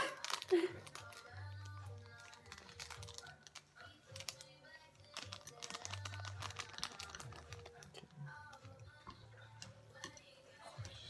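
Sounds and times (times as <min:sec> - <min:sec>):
seasoning packet crinkling: 0:00.0 - 0:08.1
quiet pop song: 0:00.0 - 0:11.0
chopsticks clicking in bowls: 0:06.9 - 0:11.0.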